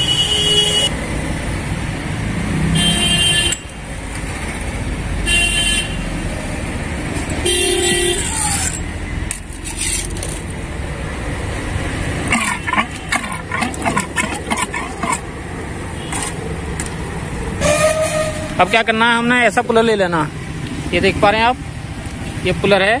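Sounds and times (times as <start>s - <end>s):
vehicle horns honking: 0.0s - 0.9s, 2.7s - 3.7s, 5.2s - 6.0s, 7.4s - 8.6s, 17.6s - 19.0s
rumble of passing engines: 0.9s - 5.3s, 5.9s - 23.0s.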